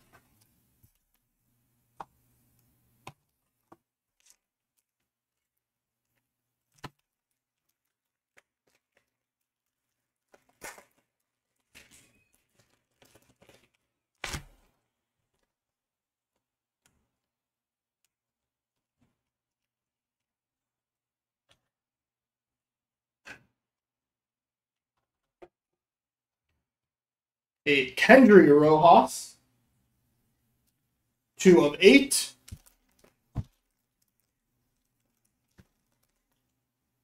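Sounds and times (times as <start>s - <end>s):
packaging rustling: 4.1s - 15.5s, 32.4s - 36.6s.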